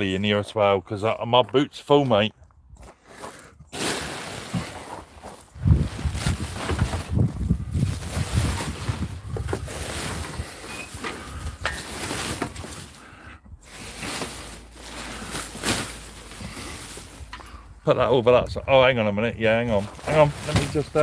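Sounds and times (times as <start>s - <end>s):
microphone handling noise: 3.6s - 12.7s
wind buffeting microphone: 5.4s - 10.6s.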